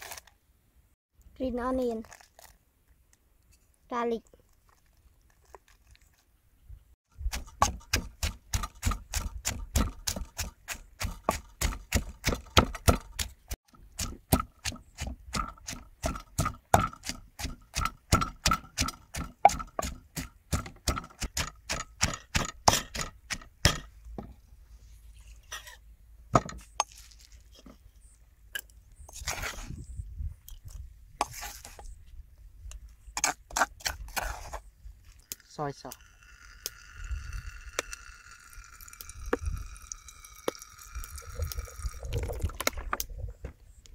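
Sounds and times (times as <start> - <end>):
wooden pestle pounding in mortar: 7.3 - 13.3, 13.9 - 23.9.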